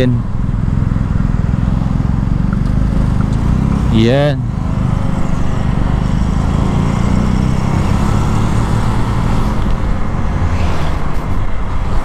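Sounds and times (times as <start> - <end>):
small motorcycle engine running: 0.4 - 9.0.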